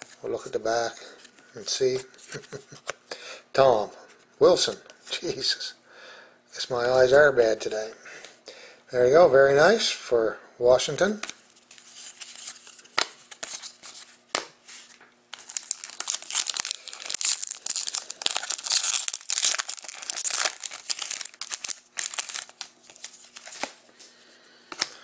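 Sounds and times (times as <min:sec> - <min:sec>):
foil wrapper tearing and crinkling: 0:15.3 - 0:23.8
cards being handled clicks: 0:22.1 - 0:23.8, 0:24.7 - 0:25.0.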